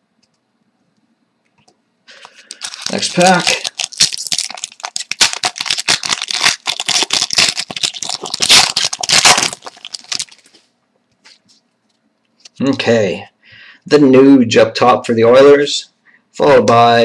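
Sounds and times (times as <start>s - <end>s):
foil wrapper tearing and crinkling: 2.1s - 10.6s.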